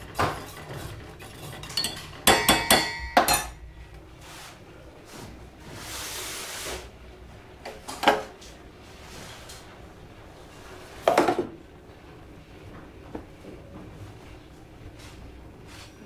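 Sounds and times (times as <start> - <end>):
metal cookware clanking: 0.2 - 3.8.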